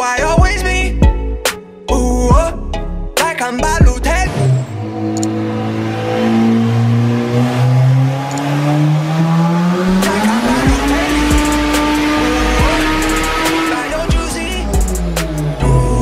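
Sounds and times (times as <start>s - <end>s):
car engine accelerating: 3.6s - 16.0s.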